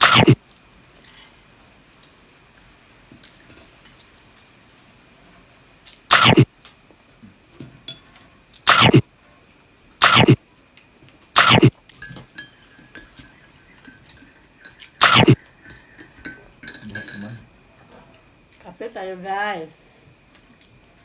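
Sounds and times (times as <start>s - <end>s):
short loud animal calls: 15.0s - 15.4s.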